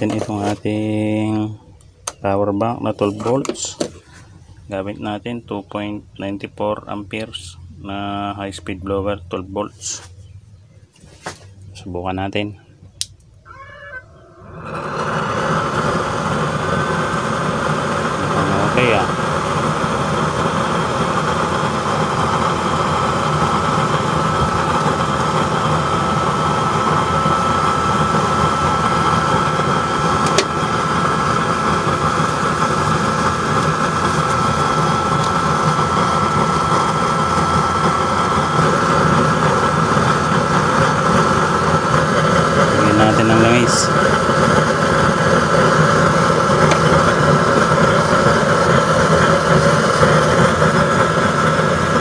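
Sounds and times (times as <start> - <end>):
click: 13.0 - 13.3
blower rushing with whine: 13.1 - 52.0.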